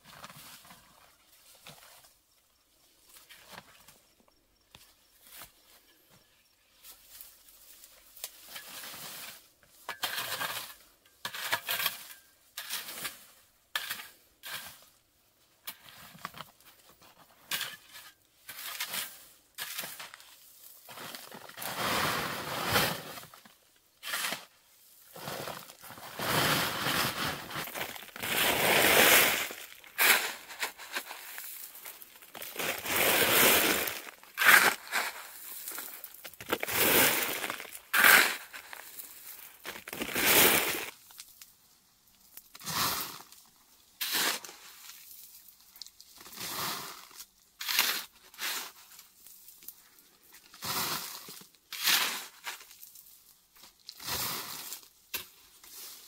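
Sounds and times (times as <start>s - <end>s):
digging tool scraping gritty ground: 6.8s - 15.0s, 15.6s - 41.0s, 42.4s - 45.1s, 46.2s - 49.2s, 50.4s - 52.9s, 53.6s - 56.0s.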